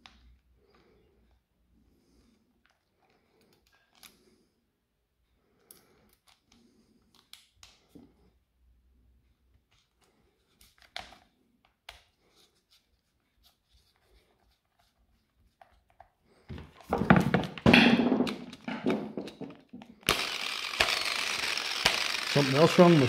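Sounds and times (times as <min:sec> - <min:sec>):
angle grinder knocking and rattling: 0:16.6 - 0:23.0.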